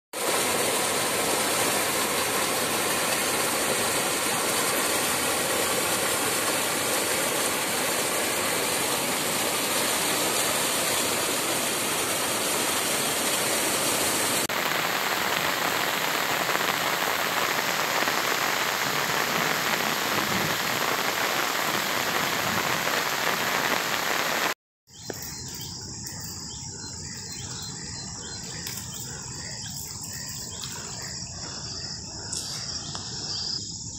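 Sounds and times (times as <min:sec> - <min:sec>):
heavy rain: 0:00.2 - 0:24.6
floodwater rushing down a stream: 0:00.2 - 0:26.3
insects chirring: 0:24.9 - 0:33.9.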